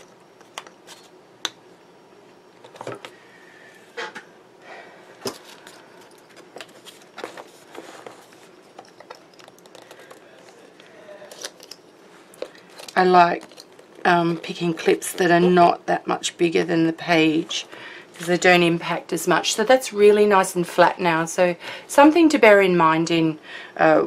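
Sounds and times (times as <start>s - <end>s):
paper rustling: 5.3s - 14.0s.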